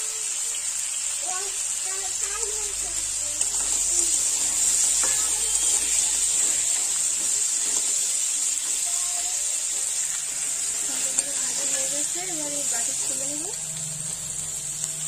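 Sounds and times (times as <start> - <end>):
crab sizzling in oil: 0.0 - 15.0
metal spatula scraping wok: 3.4 - 8.9, 9.6 - 14.9.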